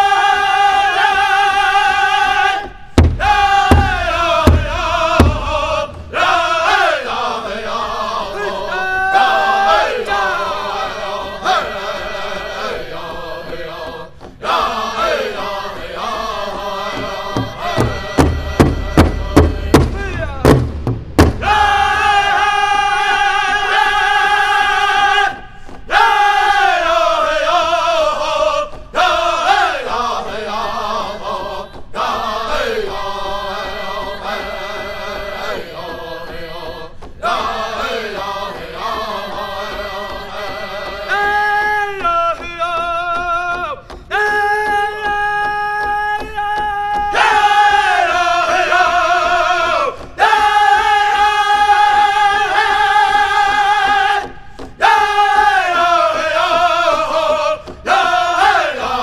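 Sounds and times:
drum group chanting high-pitched song: 0:00.0 - 0:59.0
hard drum strikes: 0:02.6 - 0:07.0, 0:16.9 - 0:22.6.

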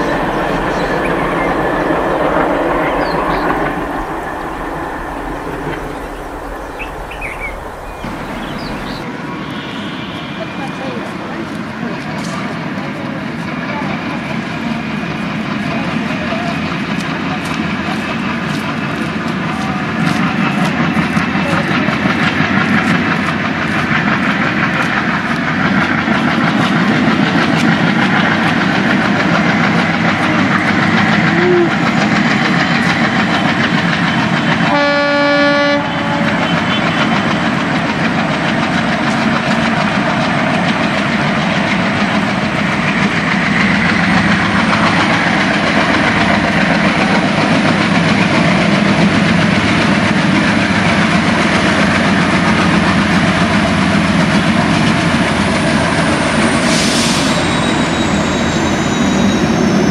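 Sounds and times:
diesel locomotive engine: 0:00.0 - 0:59.9
train wheels clickety-clack: 0:00.0 - 0:59.9
locomotive horn blast: 0:07.4 - 0:11.2, 0:34.6 - 0:37.2.

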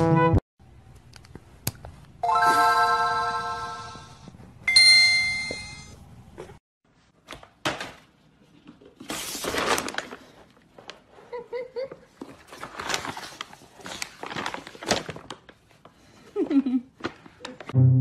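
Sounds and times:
ringing chime tones: 0:02.2 - 0:06.0.

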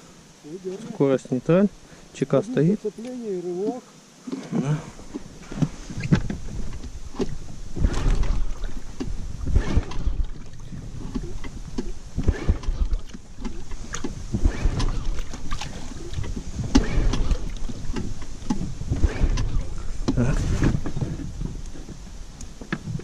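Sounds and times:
outboard motor cranking: 0:04.2 - 0:23.0
wind buffeting microphone: 0:05.0 - 0:23.0.

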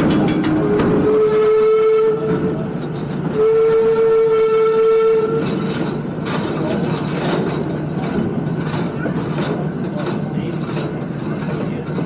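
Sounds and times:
train rumble and wheel clicking: 0:00.0 - 0:12.0
steam locomotive whistle: 0:00.6 - 0:02.7, 0:03.3 - 0:05.7.

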